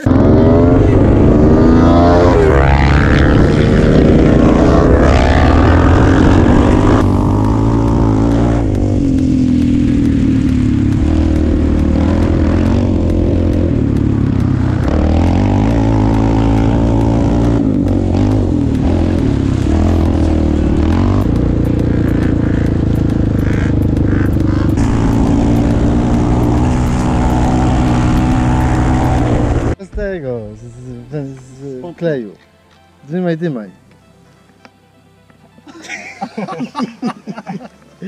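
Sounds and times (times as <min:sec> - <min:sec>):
quad engine running hard: 0:00.0 - 0:29.8.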